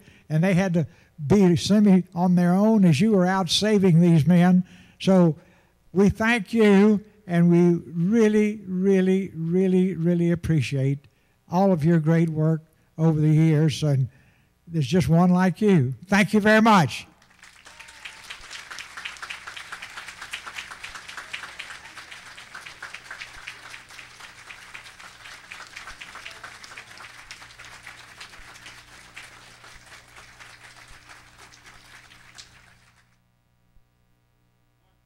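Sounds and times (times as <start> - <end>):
audience applauding: 17.2 - 33.2.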